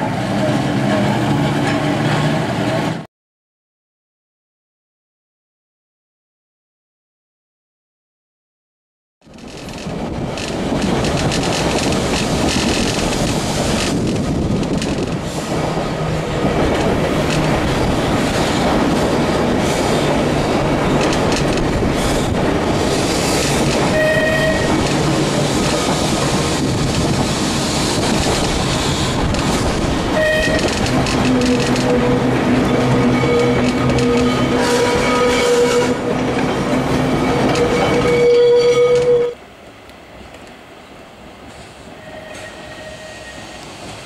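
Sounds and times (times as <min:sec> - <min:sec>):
tram wheels rumbling on rail: 0:00.0 - 0:03.1, 0:09.2 - 0:44.0
tram wheels squealing: 0:14.7 - 0:39.4, 0:41.8 - 0:44.0.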